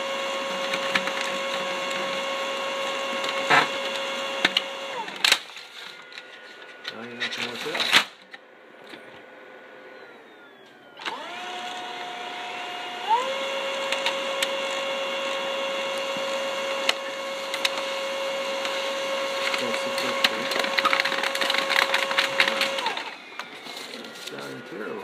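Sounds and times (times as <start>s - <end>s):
printer motors whining: 0.0s - 25.0s
paper feed clicks: 0.4s - 8.1s, 13.1s - 24.6s.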